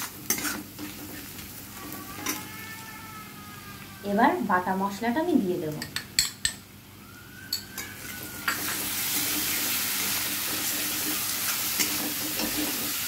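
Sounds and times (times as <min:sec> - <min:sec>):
spatula scraping pan: 0:00.0 - 0:02.5
paste sizzling in hot oil: 0:08.0 - 0:13.0.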